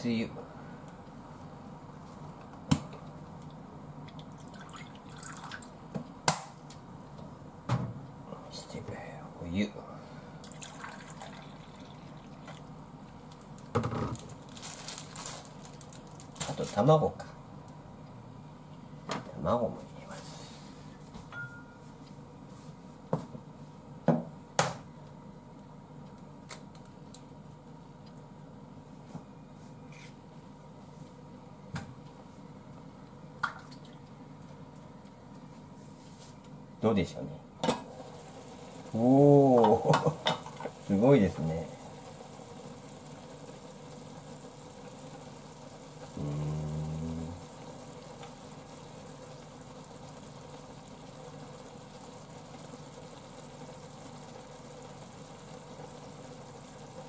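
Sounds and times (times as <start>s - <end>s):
liquid trickling into metal cup: 4.2s - 5.7s, 10.5s - 12.6s.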